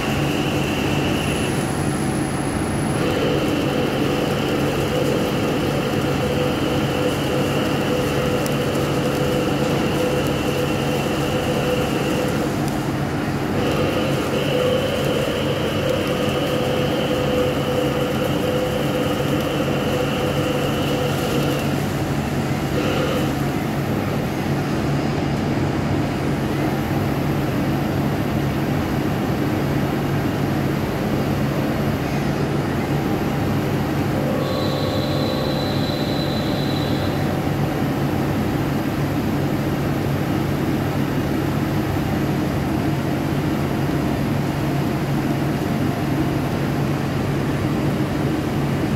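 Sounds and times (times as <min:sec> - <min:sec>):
lathe machine hum: 0:00.0 - 0:48.9.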